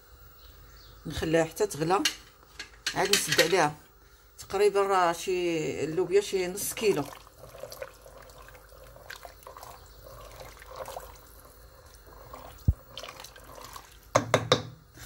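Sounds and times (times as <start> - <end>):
wooden spoon stirring liquid: 6.5 - 14.6
sloshing and dripping: 6.8 - 14.2.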